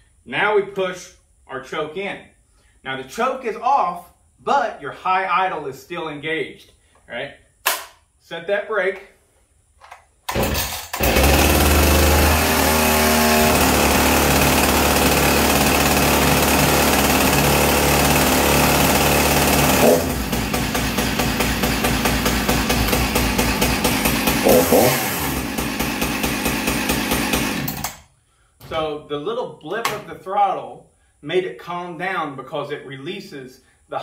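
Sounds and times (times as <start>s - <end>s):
chainsaw idling: 10.3s - 28.0s
chainsaw throttle blip: 10.3s - 28.0s.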